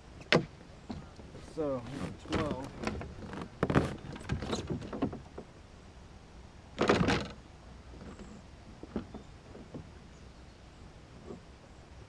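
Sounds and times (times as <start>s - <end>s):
scrape on kayak: 1.3s - 4.7s.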